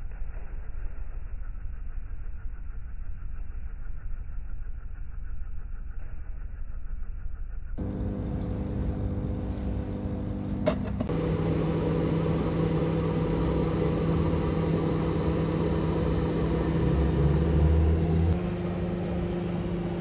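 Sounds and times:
air compressor electric hum: 7.8 - 20.0.

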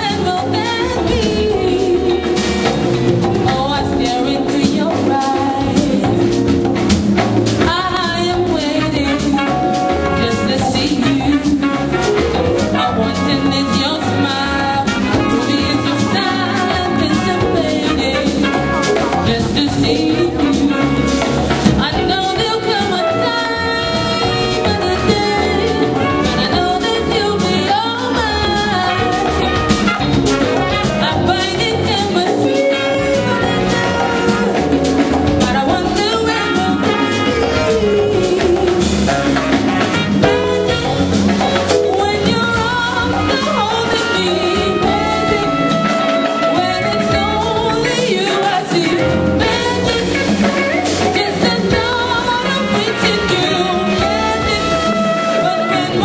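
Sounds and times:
congas: 0.0 - 56.0
drum kit: 0.0 - 56.0
live band playing: 0.0 - 56.0
person singing: 30.7 - 39.5, 41.4 - 56.0.

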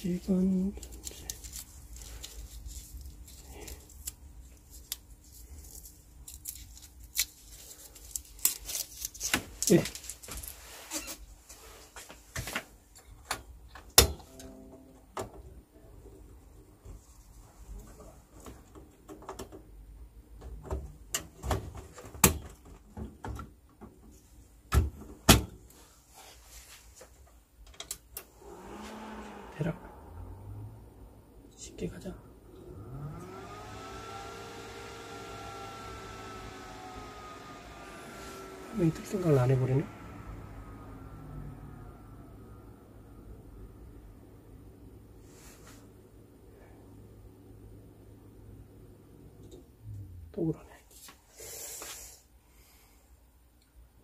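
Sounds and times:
low steady hum: 12.9 - 26.9, 27.6 - 51.1
computer fans whirring: 27.8 - 50.6.

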